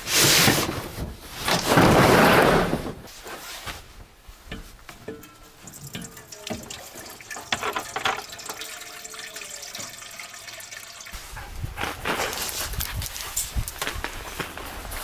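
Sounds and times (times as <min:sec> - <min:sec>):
water running: 0:05.1 - 0:11.2.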